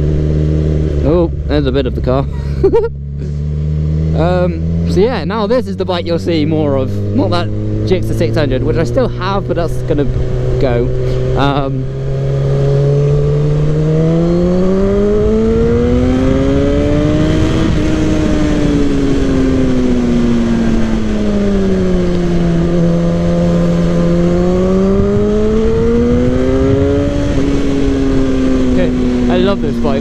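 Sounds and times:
motorcycle engine revving: 0:00.0 - 0:30.0
wind noise on microphone: 0:13.1 - 0:29.3.

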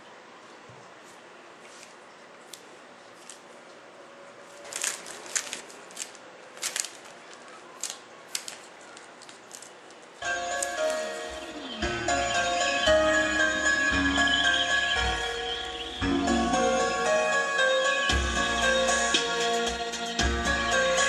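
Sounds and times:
plastic film crinkling: 0:01.6 - 0:03.6, 0:04.4 - 0:11.6
music: 0:10.2 - 0:21.0.

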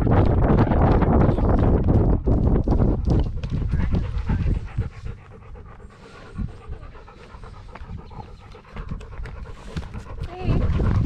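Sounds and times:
dog panting: 0:02.6 - 0:11.0.

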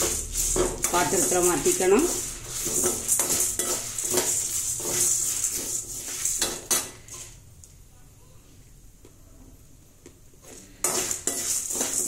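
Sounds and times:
dry grains rustling: 0:00.0 - 0:06.5
metal spoon clinking against pan: 0:00.0 - 0:06.9, 0:10.8 - 0:12.0.

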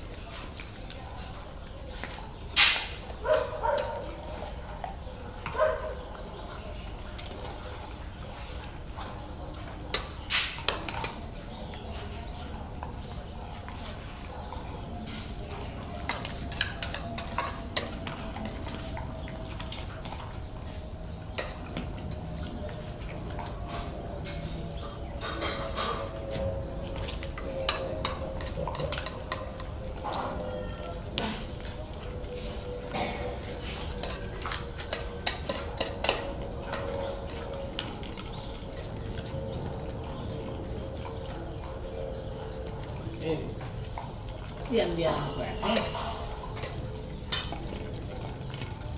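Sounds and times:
dogs eating from steel bowls: 0:00.0 - 0:48.9
metal dishes clinking: 0:16.0 - 0:18.8, 0:25.2 - 0:26.4, 0:27.4 - 0:31.4, 0:32.9 - 0:37.4, 0:45.1 - 0:47.8
spoon knocking metal pot: 0:34.0 - 0:36.8.

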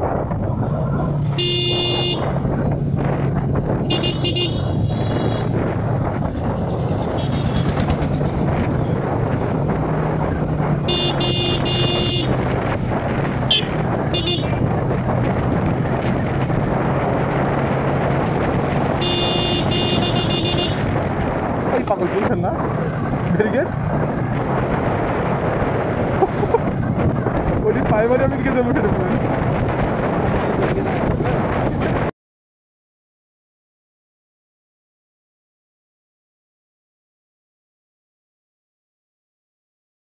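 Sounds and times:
road and wind noise: 0:00.0 - 0:32.1
motorcycle engine running: 0:00.4 - 0:21.4
motorcycle horn honking: 0:01.4 - 0:02.3, 0:03.9 - 0:05.4, 0:10.9 - 0:12.3, 0:13.5 - 0:14.6, 0:19.0 - 0:20.8.

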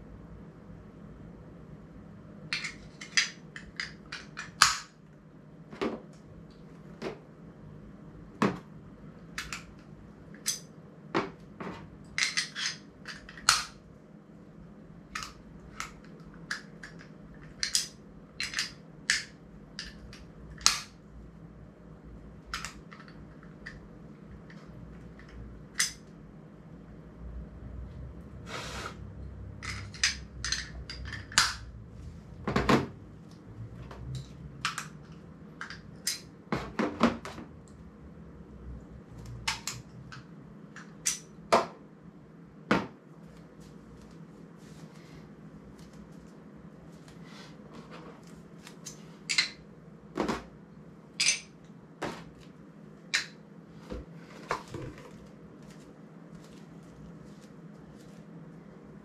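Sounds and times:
short scrape: 0:28.4 - 0:29.1.

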